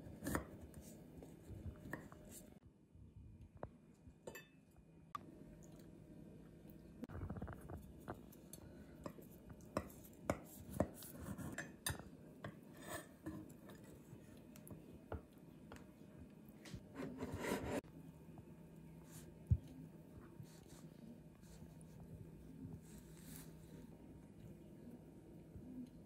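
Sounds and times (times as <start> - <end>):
dishes clinking: 4.3 - 4.6.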